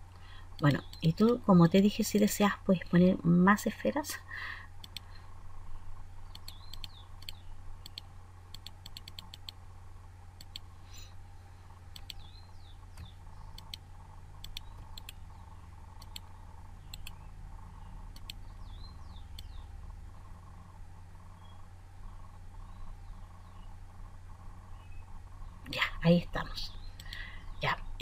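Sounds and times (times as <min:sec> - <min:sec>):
low electrical hum: 0:00.0 - 0:28.0
computer mouse clicking: 0:04.8 - 0:05.1, 0:06.3 - 0:09.6, 0:10.4 - 0:10.7, 0:11.9 - 0:12.3, 0:12.9 - 0:13.8, 0:14.4 - 0:17.2, 0:18.1 - 0:18.5, 0:19.3 - 0:19.6, 0:26.9 - 0:27.3
faint high chirps: 0:04.8 - 0:09.5.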